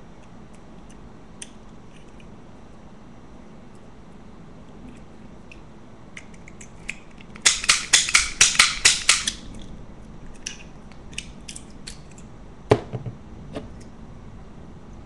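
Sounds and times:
pick gun clicking in padlock: 6.2 - 9.5.

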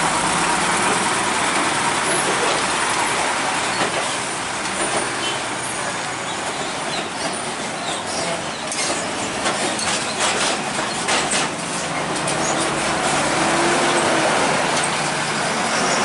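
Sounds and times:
truck engine and tyre noise: 0.0 - 16.0
wheels clattering over rails: 6.3 - 16.0.

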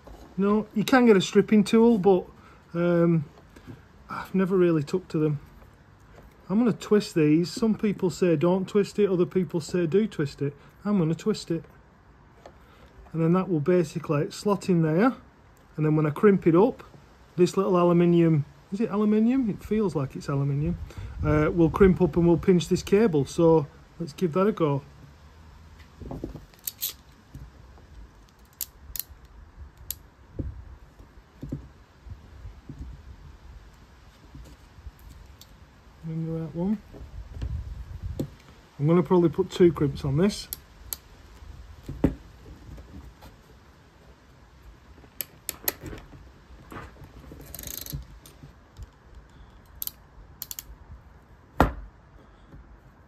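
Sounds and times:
handling rustle: 41.2 - 49.8
crimping tool metallic clicks: 49.7 - 50.7.

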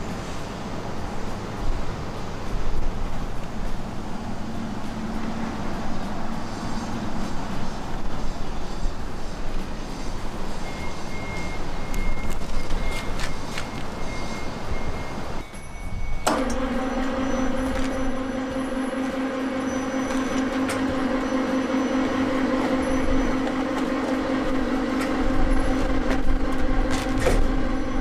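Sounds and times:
electric motor humming: 16.3 - 28.0.

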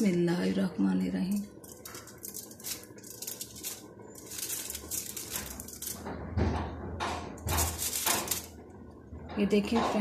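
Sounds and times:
foil crinkling: 1.2 - 6.1, 7.5 - 8.6.

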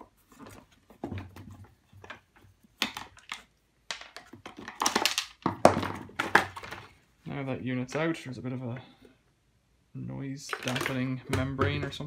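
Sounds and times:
plastic parts knocking: 0.4 - 7.0, 10.4 - 12.0.

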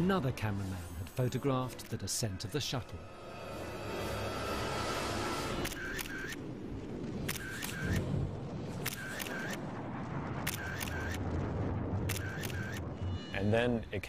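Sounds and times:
camera shutter clicking: 7.3 - 8.0.

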